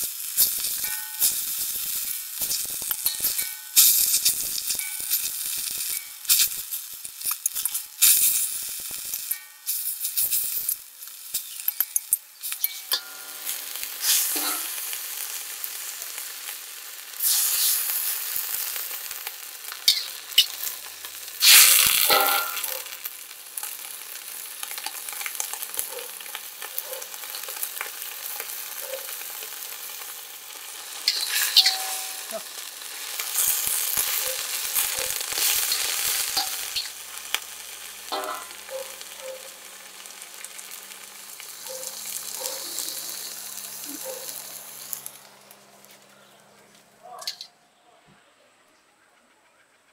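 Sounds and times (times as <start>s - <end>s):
food sizzling in oil: 0.0s - 45.9s
metal spatula scraping a wok: 11.4s - 14.9s, 17.2s - 18.3s, 21.4s - 22.7s, 31.0s - 32.3s.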